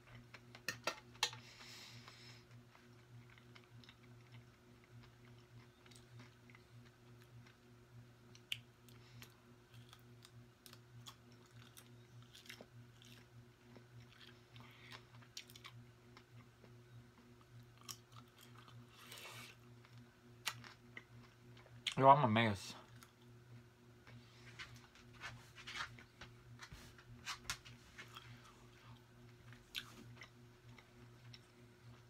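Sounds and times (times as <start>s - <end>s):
person chewing: 0.0s - 7.7s, 8.3s - 22.0s, 28.1s - 32.0s
low steady hum: 0.0s - 32.0s.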